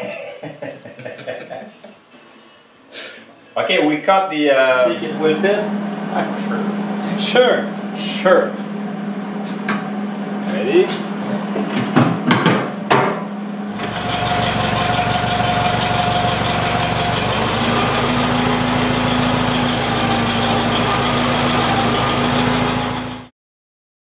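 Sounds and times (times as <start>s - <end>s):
tractor engine idling: 13.7s - 23.3s.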